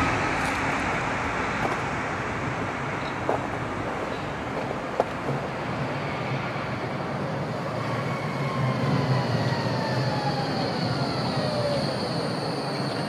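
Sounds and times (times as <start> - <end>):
tram rolling rumble: 0.0 - 13.0
high steady squeal: 5.7 - 13.0.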